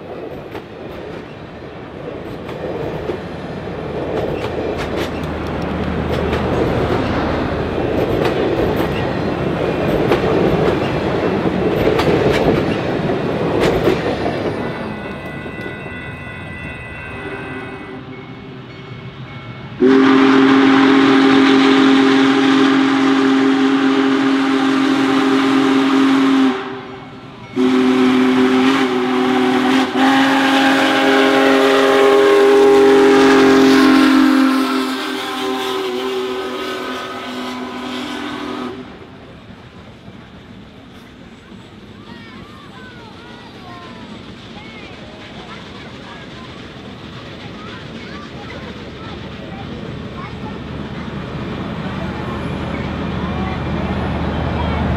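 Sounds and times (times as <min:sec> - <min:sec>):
steam train clattering on rails: 0:00.0 - 0:54.9
steam whistle blasts: 0:17.2 - 0:18.2, 0:19.8 - 0:39.0.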